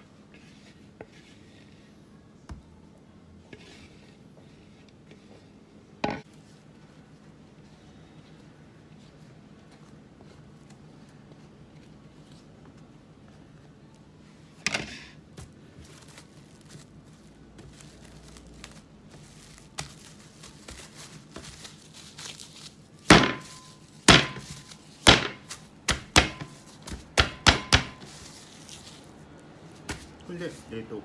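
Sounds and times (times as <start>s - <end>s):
dough thumping on counter: 23.1s - 28.1s.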